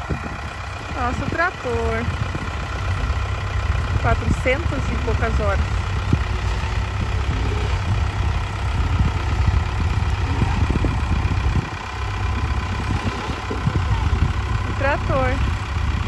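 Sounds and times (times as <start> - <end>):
tractor diesel engine running slowly: 0.0 - 16.0.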